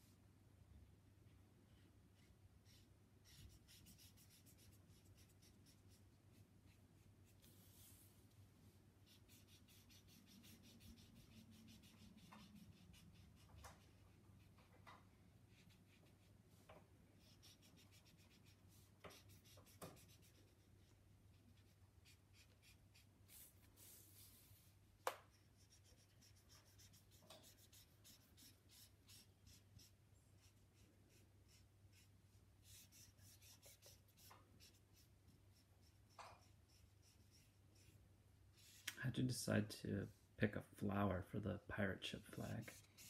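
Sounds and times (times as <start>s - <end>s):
marker scratching on paper: 2.2s - 7.4s, 9.0s - 14.5s, 15.5s - 16.3s, 17.2s - 20.9s, 21.6s - 24.4s, 25.2s - 38.0s, 42.6s - 43.0s.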